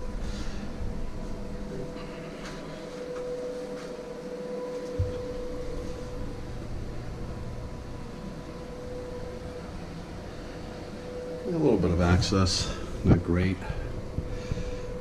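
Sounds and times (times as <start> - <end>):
engine room machinery hum: 0.0 - 15.0.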